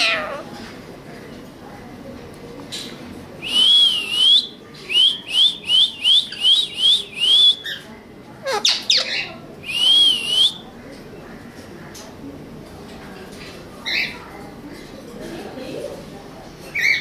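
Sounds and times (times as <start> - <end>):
parakeets whistling: 8.5 - 10.6.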